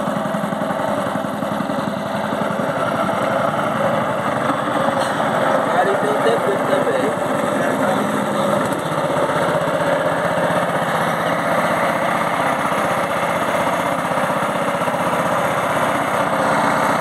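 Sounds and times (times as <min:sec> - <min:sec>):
boat engine putter: 0:00.0 - 0:17.0.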